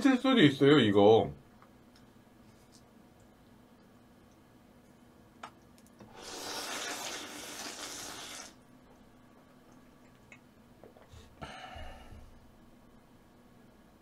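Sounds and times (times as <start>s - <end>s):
noodles slurped: 6.1s - 8.6s.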